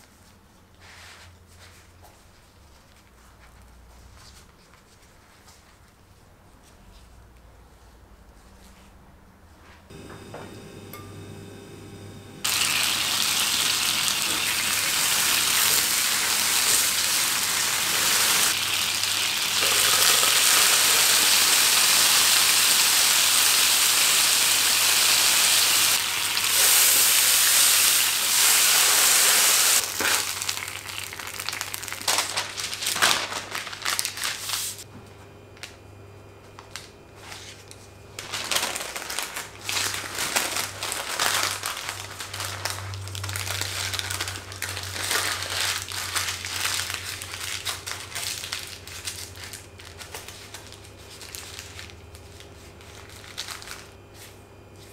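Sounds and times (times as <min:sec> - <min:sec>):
sauce sizzling in hot pan: 0:12.4 - 0:31.6
parchment paper crinkling: 0:29.8 - 0:34.8, 0:36.6 - 0:54.3.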